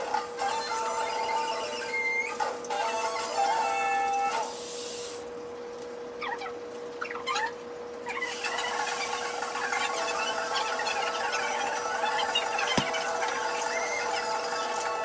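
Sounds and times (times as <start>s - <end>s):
sped up squeaky voices: 6.2s - 15.0s.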